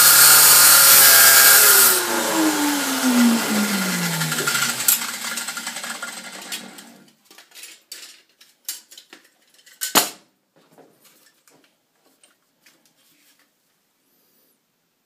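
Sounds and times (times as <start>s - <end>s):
chop saw motor winding down: 0.0s - 7.0s.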